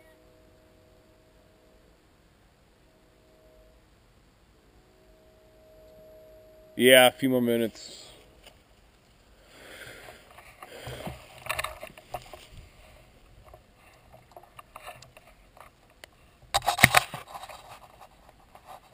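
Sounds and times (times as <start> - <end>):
handling rustling and light knocks: 10.0 - 18.9.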